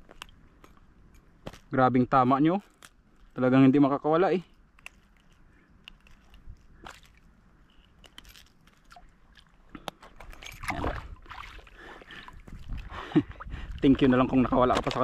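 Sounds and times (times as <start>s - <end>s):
small clicks and rustling: 0.0s - 1.8s, 4.5s - 10.8s.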